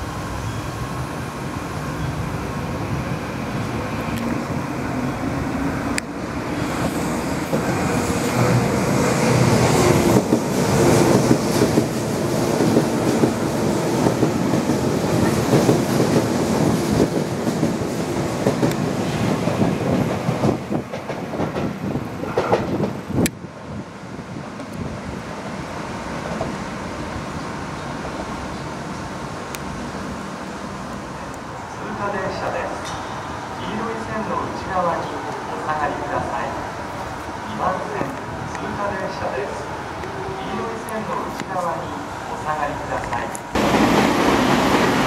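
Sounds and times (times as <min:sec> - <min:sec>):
electric train passing: 0:00.0 - 0:45.0.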